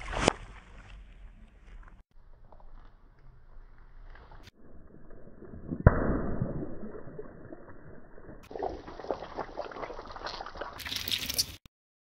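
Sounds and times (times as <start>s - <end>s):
water gushing onto asphalt: 8.5s - 11.6s.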